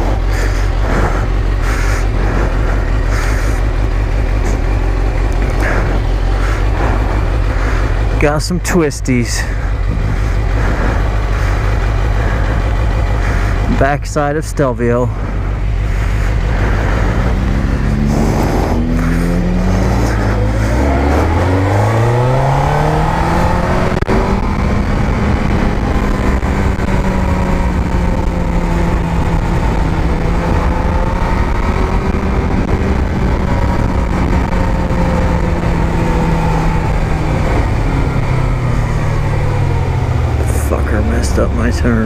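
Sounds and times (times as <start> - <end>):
motorcycle engine revving: 0.0 - 42.0
wind noise: 9.4 - 14.0, 15.1 - 41.8.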